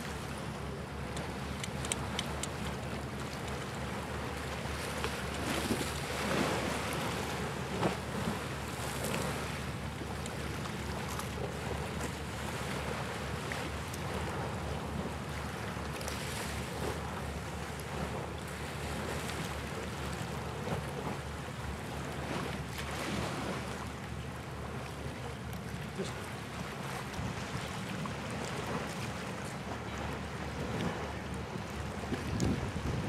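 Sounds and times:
sea waves: 0.0s - 33.0s
wind buffeting microphone: 31.8s - 33.0s.

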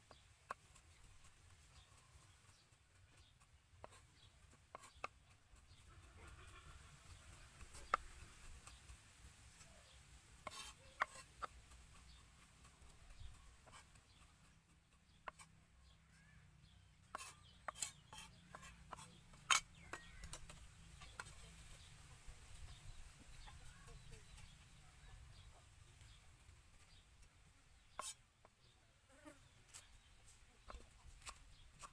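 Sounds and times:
blade scraping wood: 0.1s - 15.6s, 17.0s - 21.8s, 27.7s - 28.6s, 29.4s - 31.9s.

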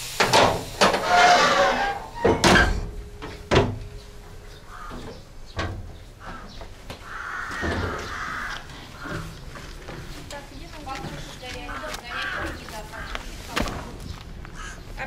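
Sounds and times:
metal step plate clanking: 0.2s - 6.4s.

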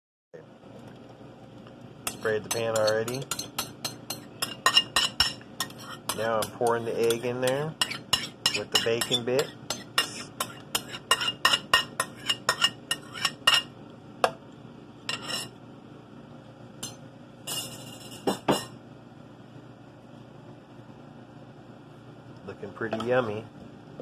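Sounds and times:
utensil clinking against a bowl: 2.0s - 13.7s.

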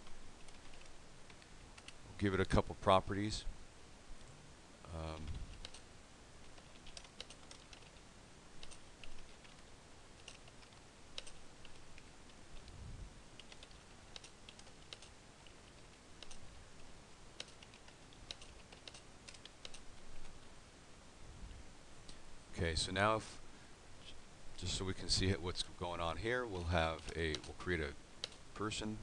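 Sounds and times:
faint keyboard typing: 0.0s - 2.6s, 5.0s - 8.0s, 8.6s - 20.6s, 26.8s - 28.6s.

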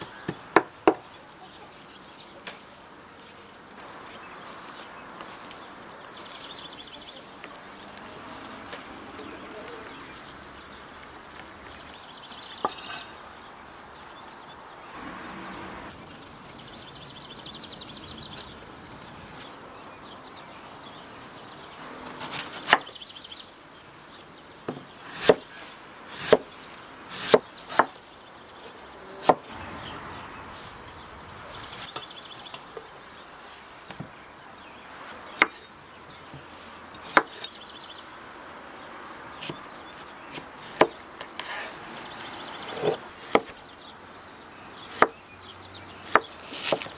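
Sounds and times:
birds chirping: 0.0s - 46.9s
knife chopping on wooden board: 24.7s - 25.4s, 26.2s - 26.5s, 46.1s - 46.9s.

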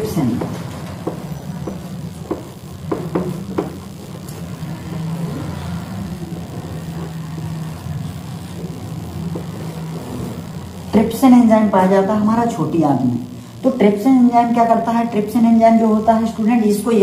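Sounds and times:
low engine-like hum: 3.4s - 11.1s.

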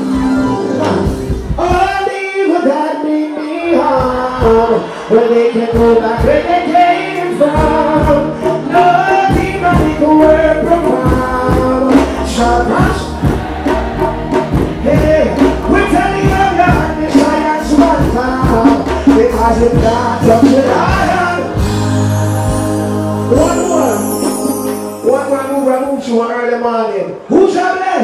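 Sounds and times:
reggae band bass and drums: 0.0s - 26.1s
man singing: 0.4s - 13.3s, 14.8s - 21.7s.

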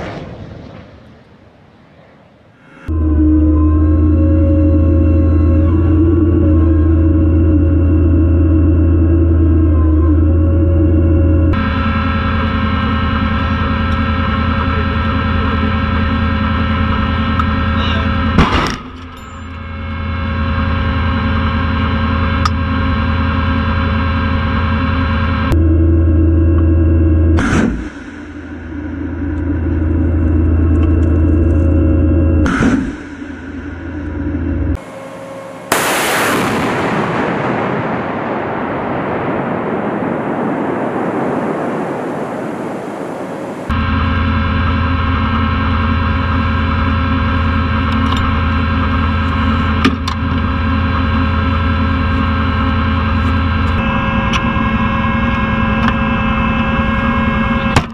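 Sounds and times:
rocket launch blast: 0.0s - 1.7s, 18.4s - 18.9s, 35.6s - 43.7s
diesel engine drone in cab: 0.1s - 57.9s
sudden loud blast: 11.5s - 25.6s, 32.4s - 57.9s.

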